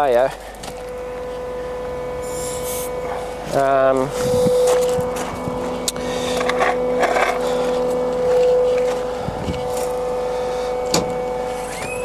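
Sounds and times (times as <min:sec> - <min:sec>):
electric machine hum: 0:00.0 - 0:12.0.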